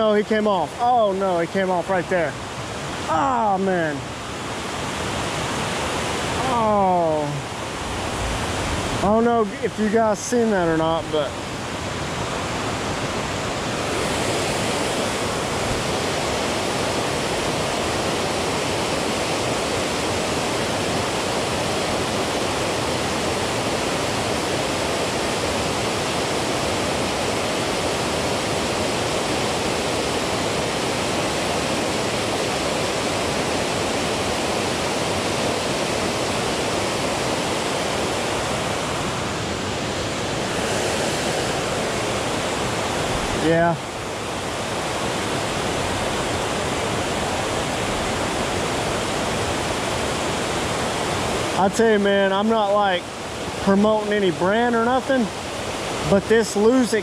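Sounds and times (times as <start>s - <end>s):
water rushing over spillway: 0.0s - 57.0s.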